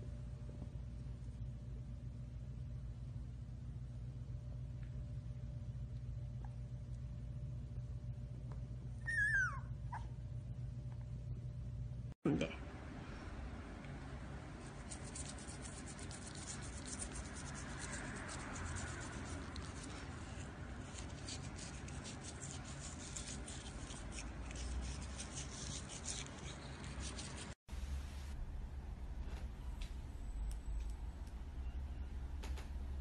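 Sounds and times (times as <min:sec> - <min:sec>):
toothbrush scrubbing teeth: 0:14.6 - 0:27.6.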